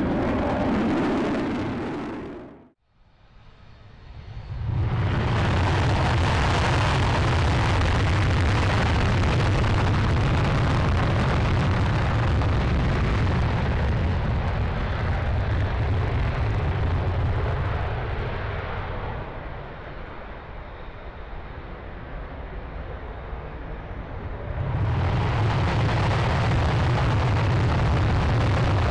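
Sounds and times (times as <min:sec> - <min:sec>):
jet engine afterburner roar: 0:00.0 - 0:02.8, 0:03.6 - 0:28.9.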